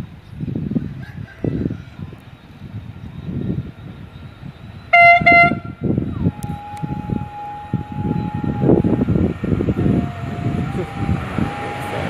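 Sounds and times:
train horn toots: 0:04.9 - 0:12.0
low rumble: 0:05.6 - 0:12.0.

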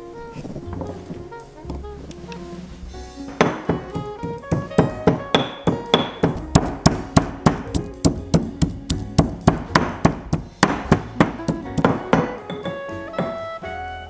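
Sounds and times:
soft background music: 0:00.0 - 0:14.0
pestle pounding in stone mortar: 0:03.4 - 0:13.4.

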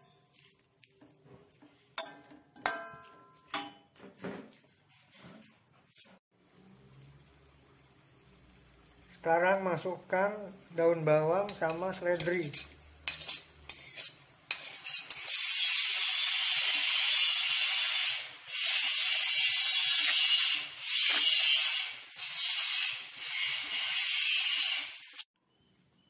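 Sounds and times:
noodles sizzling in a wok: 0:06.4 - 0:25.3.

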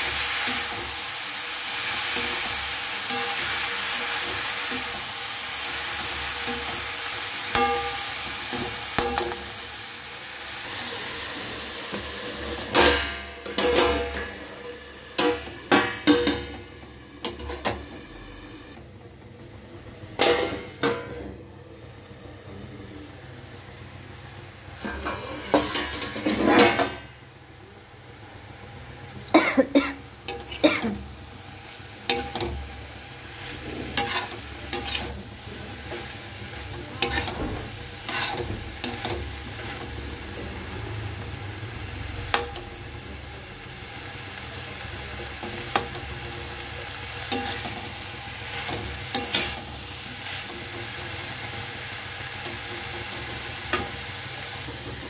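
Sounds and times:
vegetables sizzling: 0:00.0 - 0:55.0
metal spatula scraping a steel pan: 0:24.8 - 0:27.1, 0:33.3 - 0:35.2, 0:37.0 - 0:39.9, 0:48.5 - 0:50.5.

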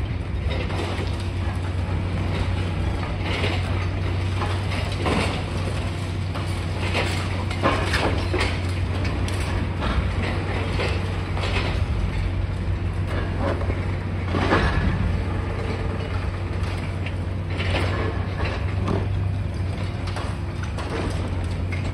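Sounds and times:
excavator engine drone: 0:00.0 - 0:21.9
concrete and metal crunching: 0:00.1 - 0:21.9.

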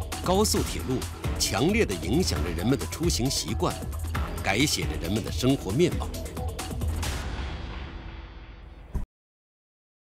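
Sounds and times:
soundtrack music: 0:00.0 - 0:08.9
short sharp hit: 0:06.9 - 0:09.0.

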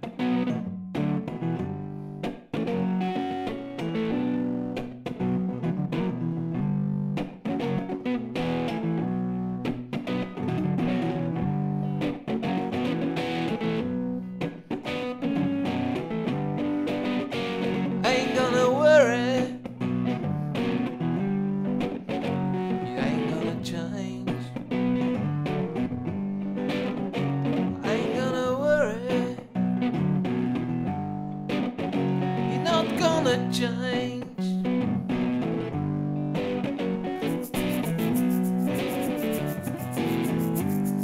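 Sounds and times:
electric guitar chords: 0:00.0 - 0:41.0
man singing: 0:18.0 - 0:19.6, 0:22.8 - 0:24.6, 0:27.8 - 0:29.5, 0:32.5 - 0:34.6.

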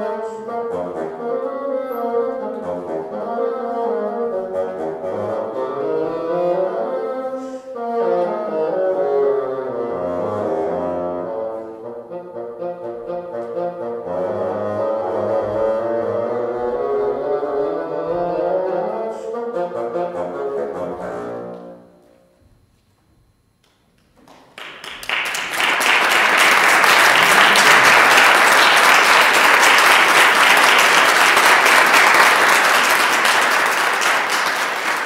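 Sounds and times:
solo bassoon playing: 0:00.0 - 0:22.2
audience applauding: 0:24.2 - 0:35.0.

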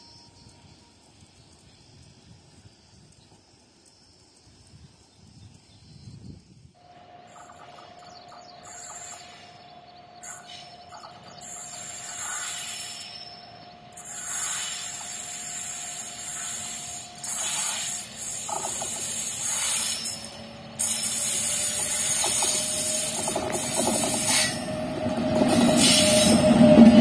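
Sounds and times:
electric locomotive approaching: 0:00.0 - 0:27.0
steady high hiss: 0:06.5 - 0:24.7.

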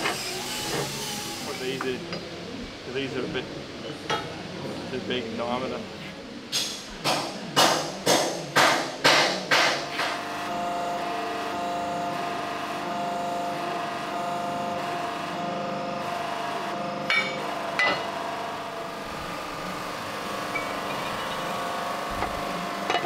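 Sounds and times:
steady multi-tone hum: 0:00.0 - 0:23.0
hammer striking steel wheel hub: 0:17.1 - 0:18.0.

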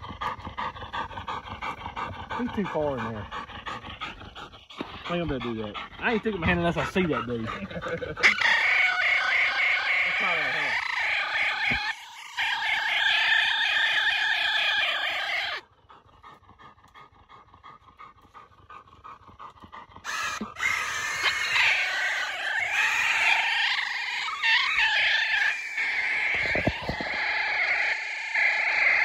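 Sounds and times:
high-pitched animal cries: 0:08.2 - 0:15.6, 0:20.1 - 0:29.0.

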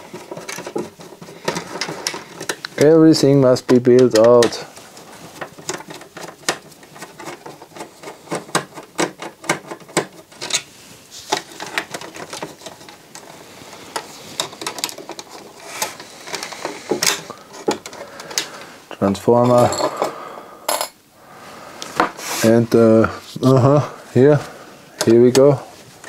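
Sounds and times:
screwdriver clicks and scrapes on metal: 0:00.1 - 0:02.9, 0:03.6 - 0:04.6.

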